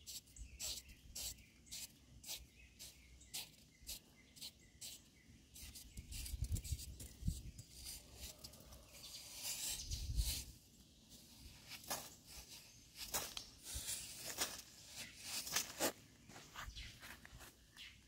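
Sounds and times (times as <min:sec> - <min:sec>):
blade scraping sand: 0:07.6 - 0:10.6.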